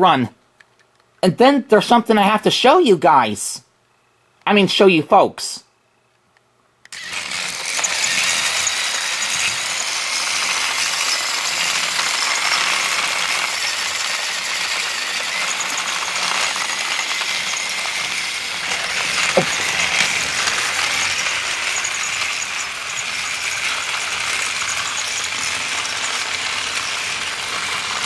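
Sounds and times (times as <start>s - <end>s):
toy train motors whirring: 6.9s - 28.0s.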